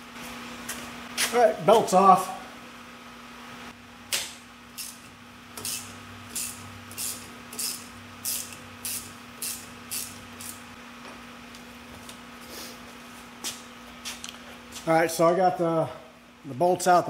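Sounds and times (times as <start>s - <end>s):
ratchet wrench clicking: 5.6s - 10.6s.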